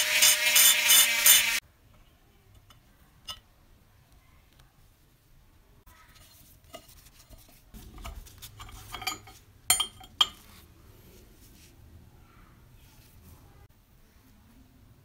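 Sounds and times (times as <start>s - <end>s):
metal screw scraping: 0.0s - 1.6s, 8.0s - 10.5s.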